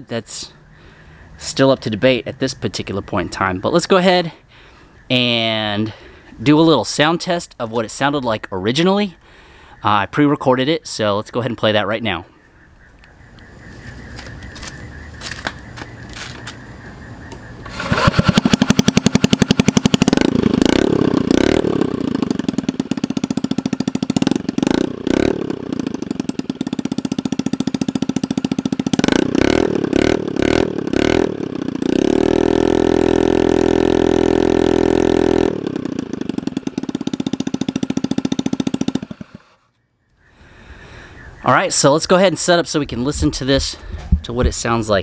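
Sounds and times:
scooter engine idling and revving: 13.4 - 39.8.

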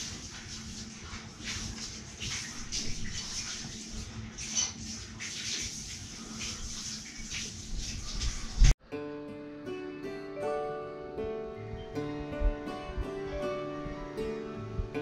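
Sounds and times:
shower water spraying on dog: 0.0 - 8.8
water splashing: 0.0 - 8.8.

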